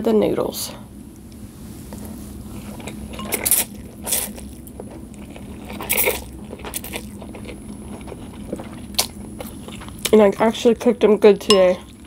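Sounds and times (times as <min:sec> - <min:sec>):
noodles being slurped: 0:02.5 - 0:10.3.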